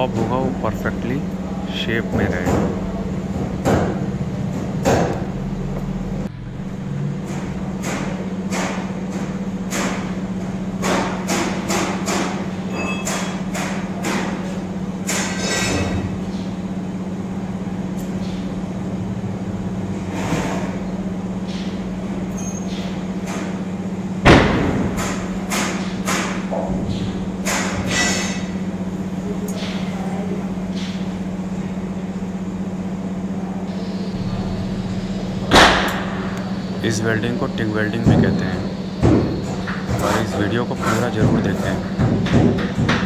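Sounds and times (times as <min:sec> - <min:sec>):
welding arc hum: 0:00.0 - 0:43.0
loud thump: 0:24.2 - 0:25.0, 0:35.5 - 0:36.3.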